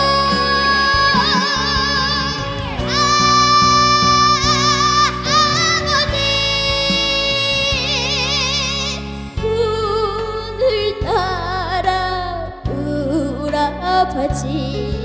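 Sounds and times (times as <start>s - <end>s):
band accompaniment: 0.0s - 11.3s
girl singing ballad: 0.0s - 15.0s.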